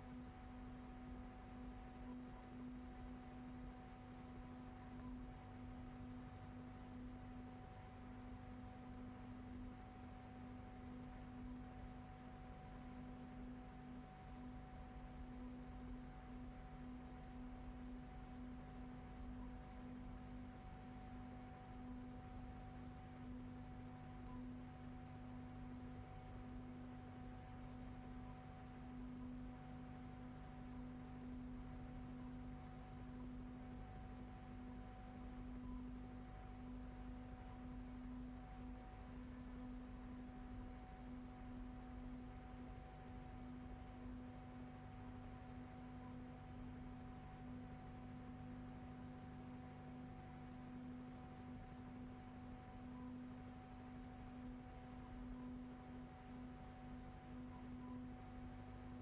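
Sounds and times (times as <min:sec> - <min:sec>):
faint electrical hum: 0:00.0 - 0:59.0.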